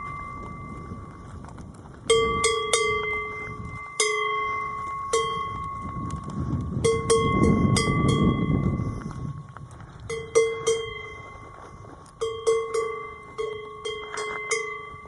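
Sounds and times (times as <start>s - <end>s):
cowbell clanking: 0.0s - 1.2s, 2.1s - 9.4s, 10.1s - 15.0s
low rumbling noise: 0.0s - 15.0s.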